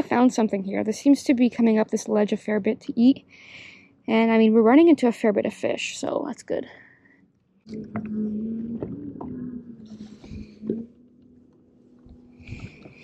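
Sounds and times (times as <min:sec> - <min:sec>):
trolling motor humming: 0:07.7 - 0:13.0.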